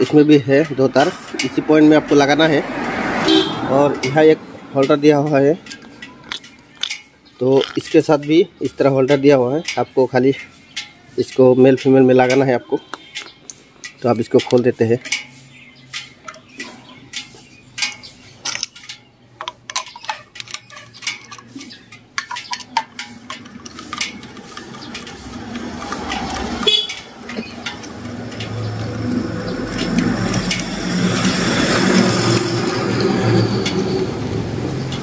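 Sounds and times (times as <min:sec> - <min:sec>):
engine noise: 0:00.0 - 0:35.0
screwdriver metallic clicks: 0:12.3 - 0:33.0.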